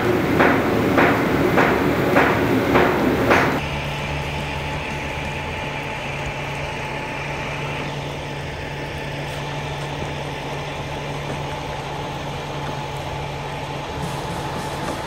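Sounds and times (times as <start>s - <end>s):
diesel engine humming: 0.0s - 15.0s
thin steady whine: 0.0s - 15.0s.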